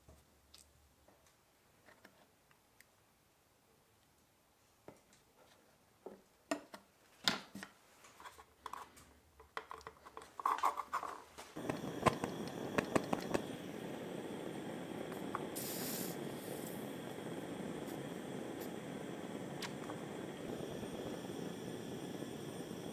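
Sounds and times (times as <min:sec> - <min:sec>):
steady hiss: 0:11.4 - 0:22.9.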